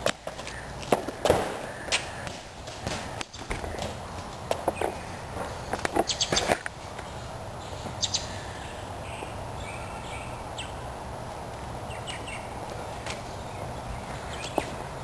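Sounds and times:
low outdoor background: 0.0 - 15.0
high bird chirps: 6.0 - 6.5, 7.6 - 10.8.

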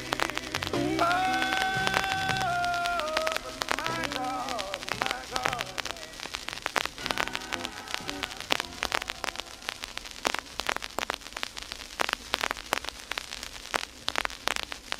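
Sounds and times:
vinyl record crackle and pops: 0.0 - 14.9.

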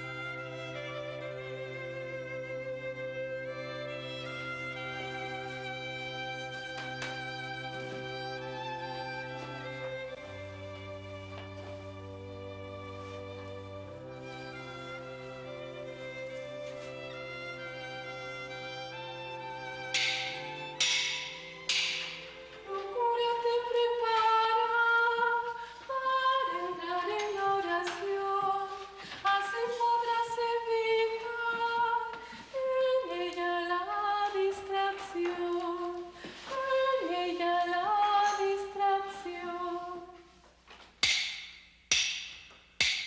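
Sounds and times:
sharp knocks: 19.9 - 22.3, 41.0 - 43.0
woman singing a slow hymn: 22.6 - 40.2.

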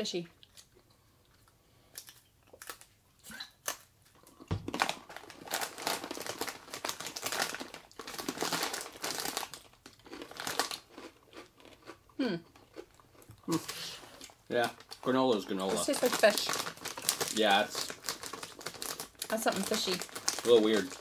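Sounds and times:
plastic snack bag crinkling: 3.7 - 11.9, 13.5 - 21.0.

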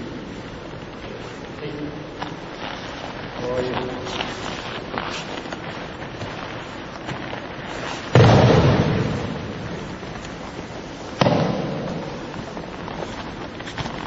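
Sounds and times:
body slapping onto foam mat: 7.0 - 10.3, 11.1 - 14.0.

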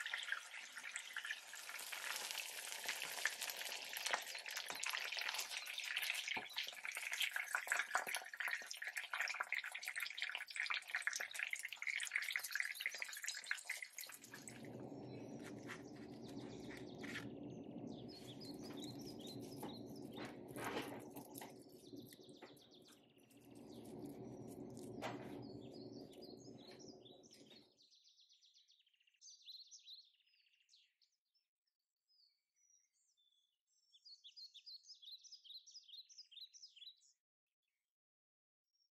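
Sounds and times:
fish sizzling in hot oil: 0.0 - 27.5
steady low sound: 14.2 - 27.6.

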